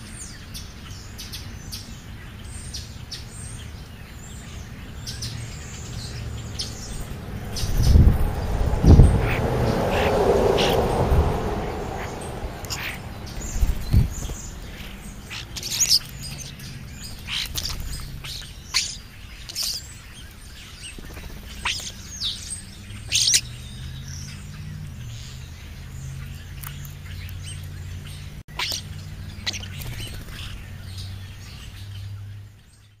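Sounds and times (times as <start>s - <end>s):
starlings chirping and whistling: 0.0s - 33.0s
low hum: 4.5s - 18.6s.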